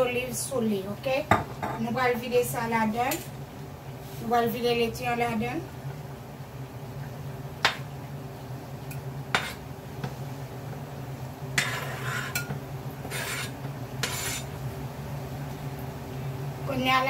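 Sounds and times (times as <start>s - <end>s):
spoon scraping cutting board: 9.3s - 9.7s, 11.6s - 14.5s.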